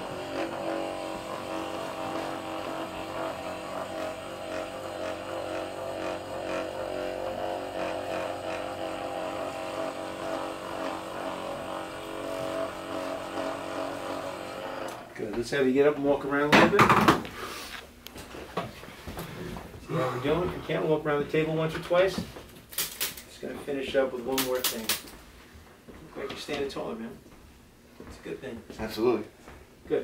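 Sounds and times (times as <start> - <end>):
massage gun buzzing: 0.0 - 15.1.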